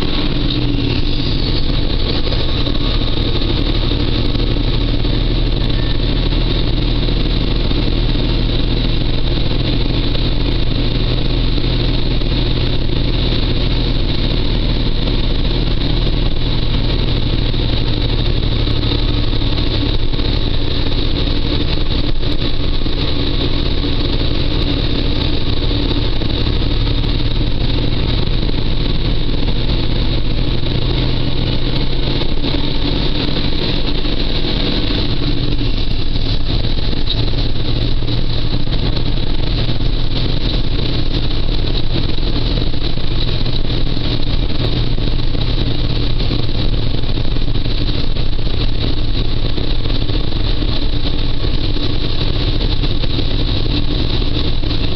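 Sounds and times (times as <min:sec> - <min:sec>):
truck diesel engine running: 0:00.0 - 0:54.9.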